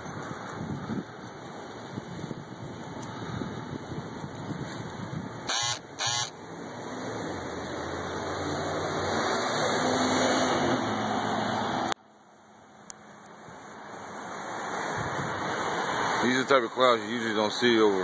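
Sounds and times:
motor vehicle passing: 5.5s - 12.0s.

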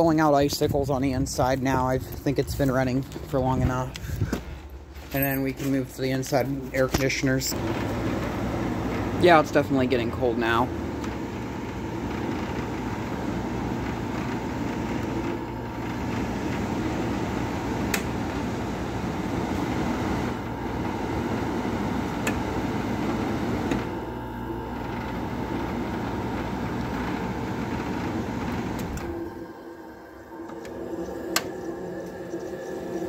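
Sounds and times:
air conditioner running: 0.0s - 33.0s.

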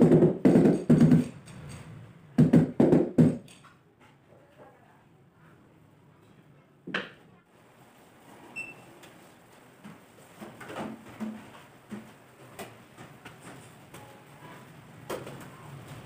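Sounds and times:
tools knocking on counter: 0.0s - 1.7s, 6.9s - 7.2s.

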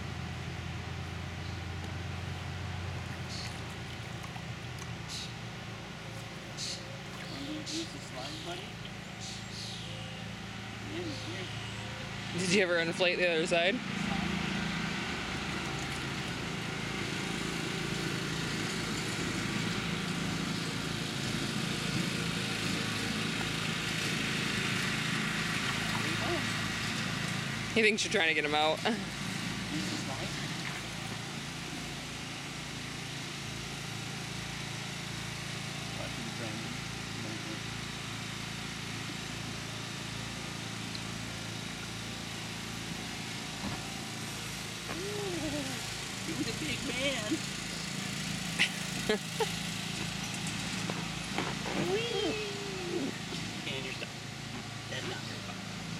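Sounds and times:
steady motor drone: 0.0s - 55.9s.

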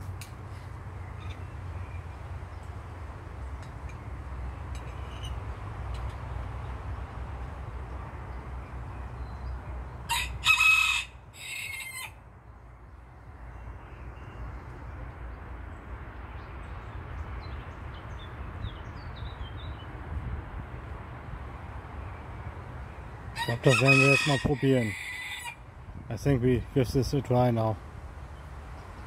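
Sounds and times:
small birds chirping: 0.5s - 2.8s, 12.4s - 20.0s
rooster crowing: 10.1s - 12.2s, 23.3s - 25.6s.

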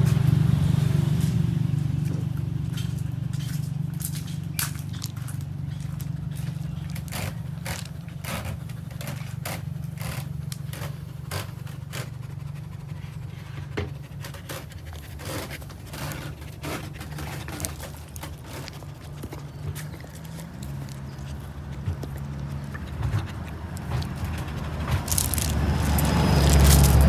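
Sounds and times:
dog panting: 6.4s - 27.0s.

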